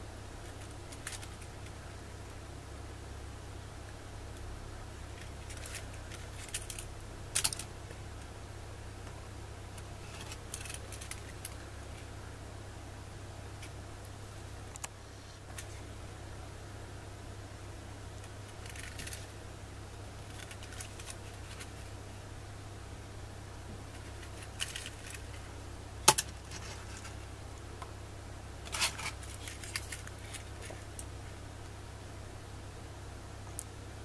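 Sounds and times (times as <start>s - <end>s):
steady low hum: 0.0s - 34.0s
plastic model train cars clicking: 5.2s - 7.7s, 18.6s - 19.3s, 24.0s - 25.3s.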